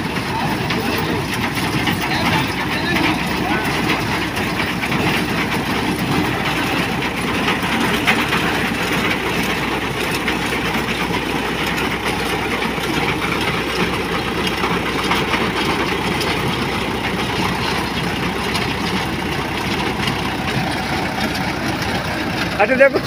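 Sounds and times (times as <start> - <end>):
reaper engine running: 0.0 - 23.0.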